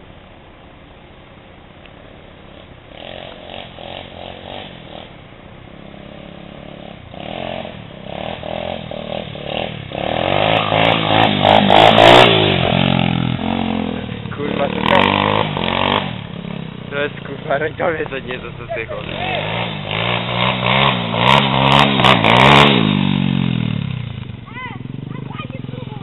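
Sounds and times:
dirt bike engine revving: 2.4s - 26.0s.

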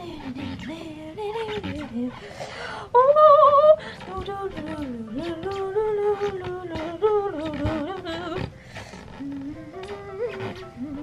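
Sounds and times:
woman humming: 2.9s - 11.0s.

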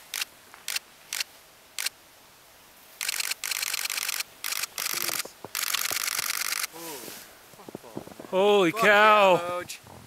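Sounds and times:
camera shutter firing: 3.0s - 6.7s.

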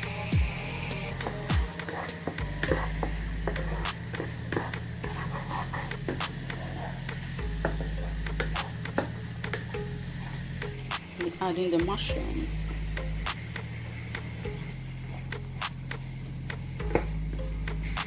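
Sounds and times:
sauce sizzling: 0.0s - 18.0s
spatula scraping frying pan: 1.2s - 10.5s
low steady hum: 7.2s - 18.0s.

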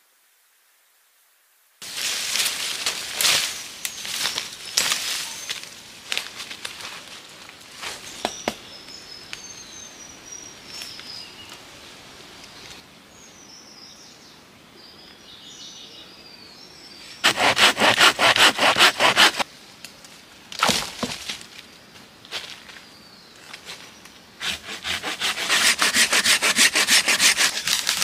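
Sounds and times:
footsteps in leaf litter: 1.8s - 8.2s, 25.6s - 28.0s
hand saw cutting wood: 17.2s - 19.4s, 24.4s - 28.0s.

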